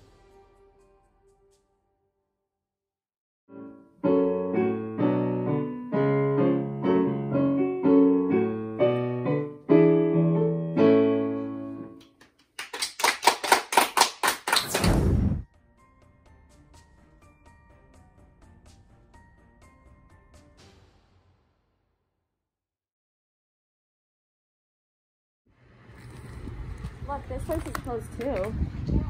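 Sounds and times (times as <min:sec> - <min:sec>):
digital piano chords: 0:03.5 - 0:12.0
people clapping: 0:12.0 - 0:15.1.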